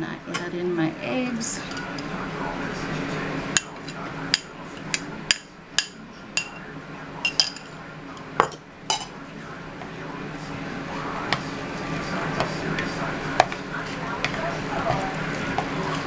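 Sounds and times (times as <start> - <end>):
spoon clinking ceramic bowl: 7.2 - 7.7.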